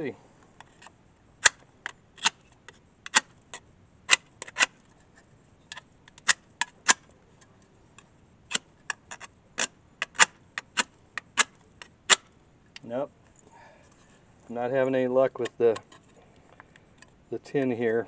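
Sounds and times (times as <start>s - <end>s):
metal edge scraping fire-starter rod: 0.6s - 12.3s, 15.3s - 16.2s.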